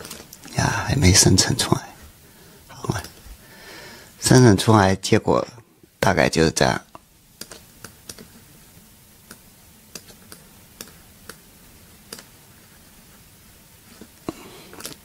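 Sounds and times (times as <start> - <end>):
computer mouse clicking: 7.4 - 8.3, 9.3 - 11.4, 12.1 - 12.3.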